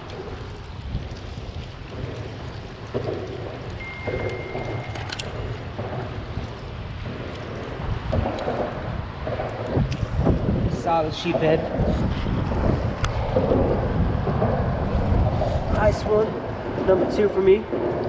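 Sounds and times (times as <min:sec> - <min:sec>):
wind buffeting microphone: 0:00.0 - 0:18.0
thin high tone: 0:03.8 - 0:05.1.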